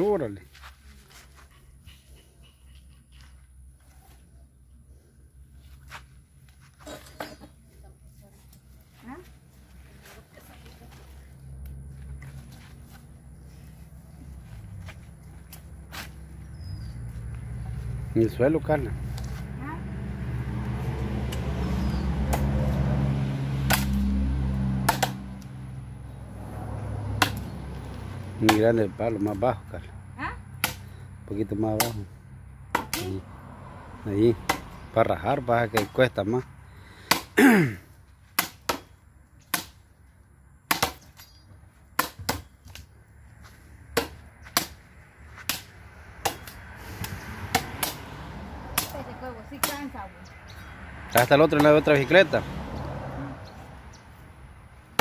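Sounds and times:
machete chopping wood: 0:22.2 - 0:22.6, 0:23.6 - 0:24.1, 0:24.8 - 0:25.4, 0:27.1 - 0:27.5, 0:28.4 - 0:28.7, 0:30.6 - 0:31.0, 0:31.7 - 0:32.1, 0:32.7 - 0:33.2, 0:34.4 - 0:34.8, 0:35.7 - 0:36.0, 0:37.0 - 0:37.7, 0:38.3 - 0:39.8, 0:40.6 - 0:41.3, 0:41.9 - 0:42.9, 0:43.9 - 0:44.8, 0:45.4 - 0:48.1, 0:48.7 - 0:49.0, 0:49.6 - 0:49.9, 0:51.2 - 0:52.0.

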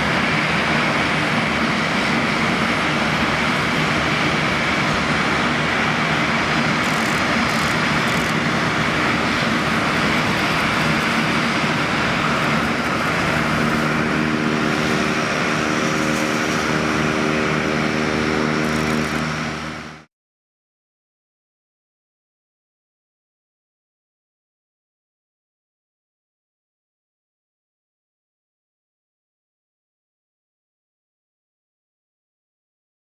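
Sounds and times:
jet engines roaring: 0:00.0 - 0:20.1
low engine tones: 0:00.0 - 0:20.1.

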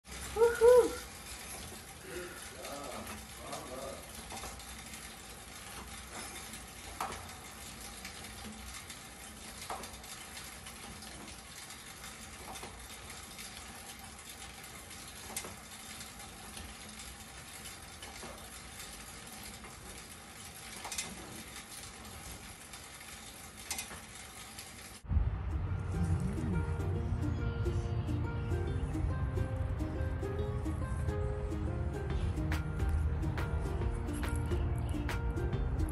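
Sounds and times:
exercise bike fan whooshing: 0:00.0 - 0:35.9
loud music: 0:25.1 - 0:35.9.

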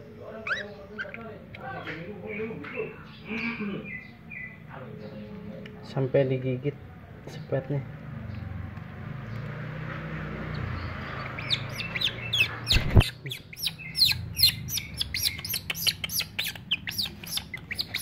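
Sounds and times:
baby animal chirping squeaks: 0:00.4 - 0:01.6, 0:10.5 - 0:18.0.

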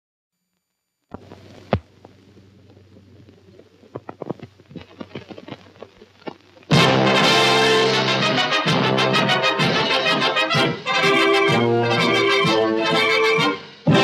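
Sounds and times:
low hum: 0:00.4 - 0:07.0
film soundtrack hiss: 0:00.4 - 0:14.0
clicks and pops: 0:00.5 - 0:06.8.

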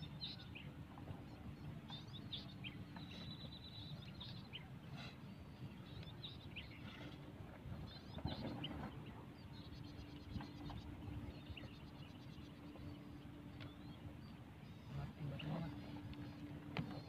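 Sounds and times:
bird chirps: 0:00.0 - 0:07.2
low outdoor rumble: 0:00.0 - 0:17.0
steady low hum: 0:00.0 - 0:17.0.

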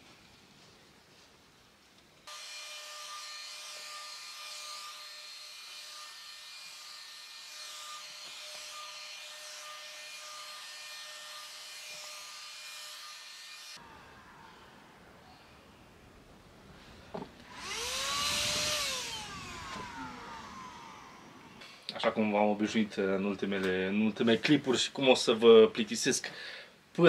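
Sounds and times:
electric spray gun whining: 0:13.8 - 0:15.0, 0:17.4 - 0:21.6.

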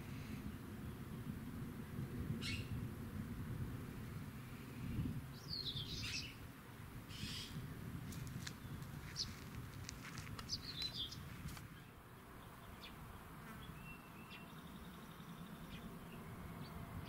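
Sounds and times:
birds chirping: 0:02.4 - 0:02.8, 0:05.3 - 0:06.4, 0:07.1 - 0:17.0.

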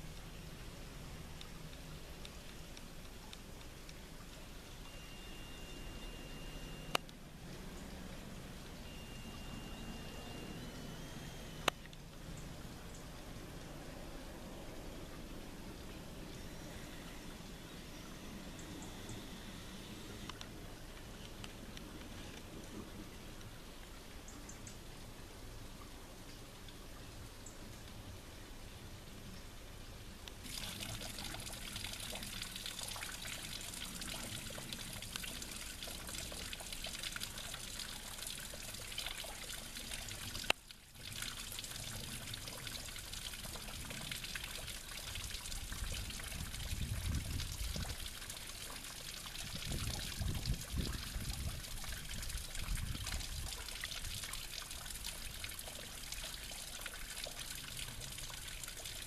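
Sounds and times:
water trickling down rock: 0:00.0 - 0:06.2, 0:20.1 - 0:59.0.

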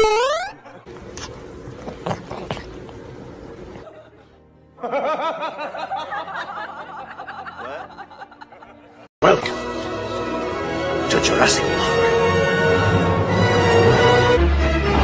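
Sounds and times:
background music: 0:00.2 - 0:15.0
laughter: 0:03.8 - 0:09.1.

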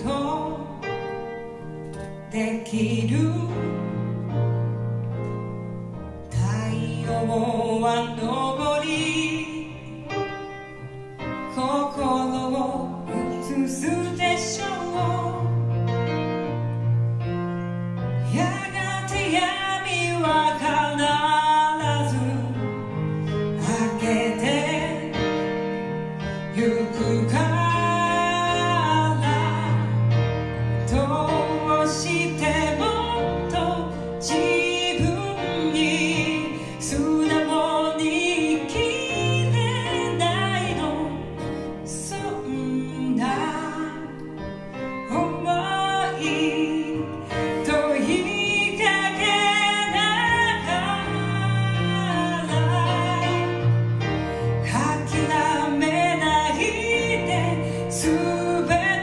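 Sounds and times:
woman singing: 0:00.0 - 0:04.6, 0:06.2 - 0:16.0, 0:18.2 - 0:59.0.

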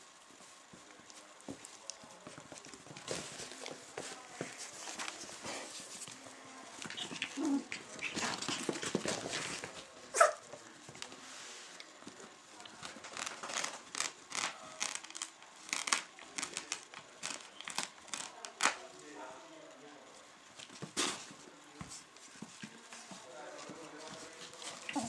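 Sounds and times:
puppy scuffling on carpet: 0:00.2 - 0:12.3, 0:20.5 - 0:25.0.

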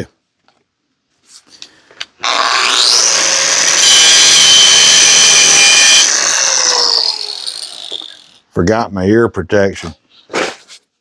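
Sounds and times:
angle grinder whine: 0:02.2 - 0:08.4
grinder grinding steel: 0:02.2 - 0:08.4.

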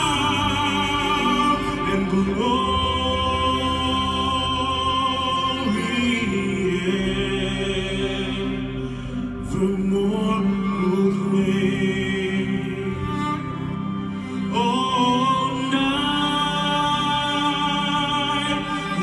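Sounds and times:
keyboard: 0:00.0 - 0:19.0
man singing with vibrato: 0:00.0 - 0:19.0.

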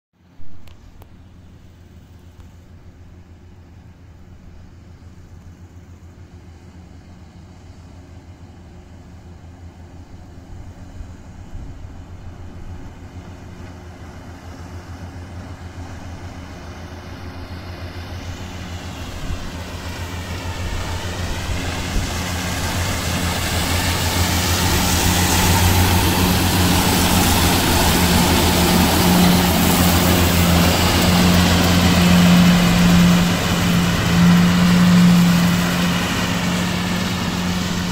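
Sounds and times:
tractor engine hum: 0:00.3 - 0:37.9
whirring rush of mowers: 0:10.5 - 0:37.9.

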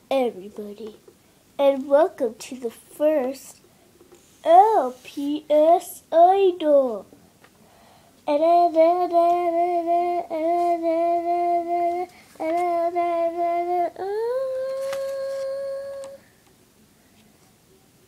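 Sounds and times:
child singing held notes: 0:08.2 - 0:16.2.

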